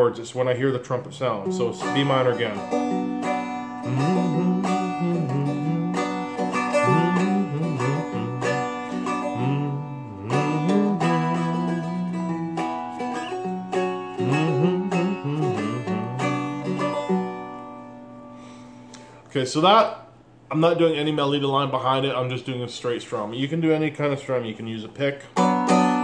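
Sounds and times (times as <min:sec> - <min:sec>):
strummed string instrument: 0:01.2 - 0:19.1, 0:25.3 - 0:26.0
man humming: 0:03.7 - 0:12.9, 0:14.1 - 0:17.1.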